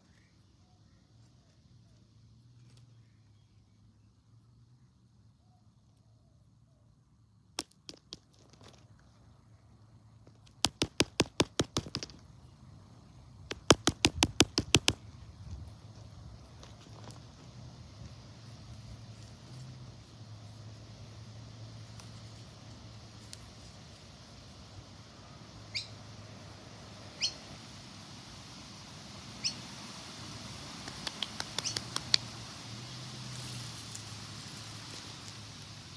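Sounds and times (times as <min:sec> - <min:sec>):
rapid sharp clicks: 0:10.4 - 0:12.2, 0:13.5 - 0:15.0, 0:30.8 - 0:32.3
small bird chirping: 0:25.6 - 0:26.0, 0:27.1 - 0:27.5, 0:29.4 - 0:29.7, 0:30.8 - 0:32.3.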